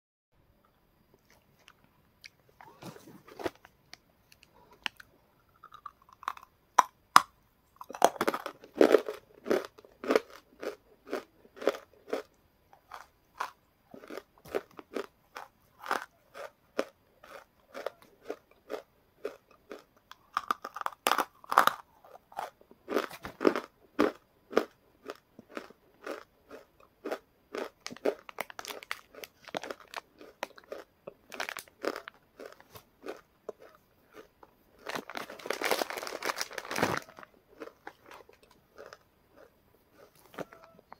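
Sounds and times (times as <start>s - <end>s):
crunching and chewing clay chunks: 1.2s - 40.9s.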